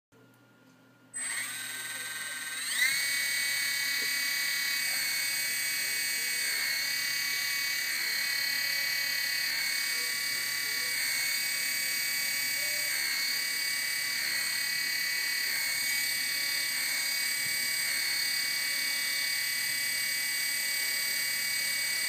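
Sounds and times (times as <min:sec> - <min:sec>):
electric motor high whine: 0:01.2 - 0:22.0.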